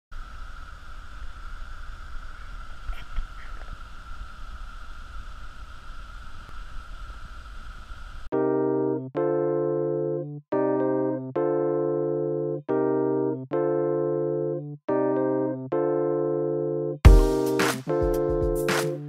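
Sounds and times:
piano music: 8.3 - 19.0.

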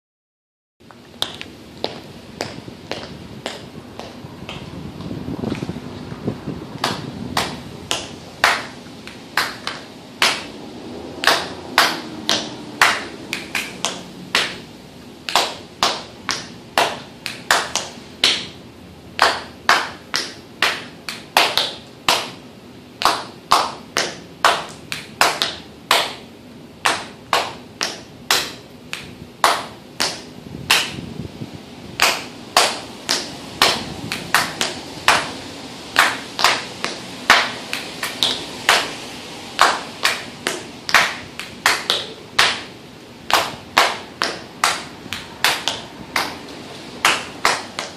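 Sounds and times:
hand claps in rhythm: 6.8 - 10.6, 11.2 - 18.6, 19.2 - 22.4, 23.0 - 31.0, 32.0 - 39.0, 39.6 - 46.4, 47.0 - 47.9.

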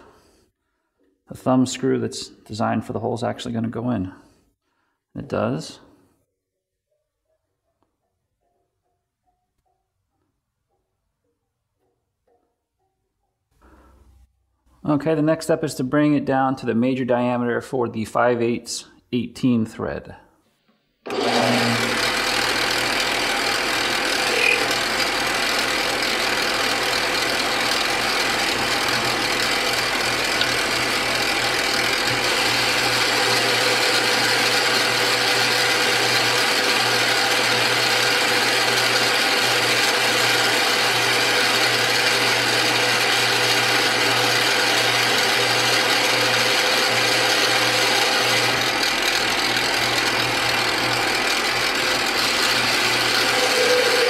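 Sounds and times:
cutting tool turning metal: 21.1 - 54.0
metal lathe humming: 21.1 - 54.0.

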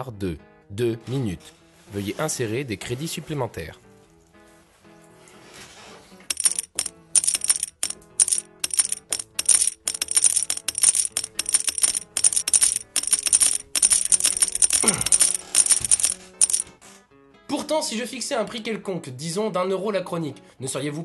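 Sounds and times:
background music: 0.0 - 21.0
coins clinking into slot: 6.3 - 16.7.

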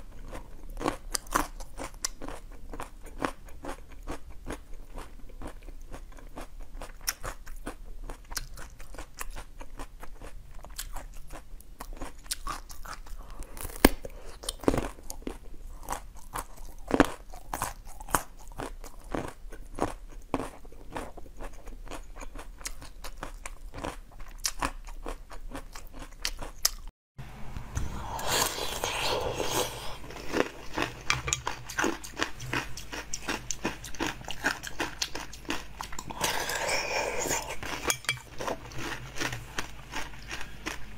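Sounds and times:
chewing frozen dessert bar: 0.1 - 26.9, 28.1 - 40.9.

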